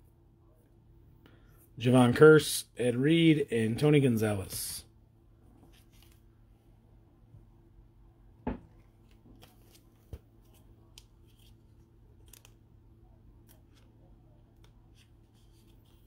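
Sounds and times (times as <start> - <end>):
knock: 8.4 - 8.7
cards clicking and rustling: 8.9 - 12.6, 13.4 - 16.0.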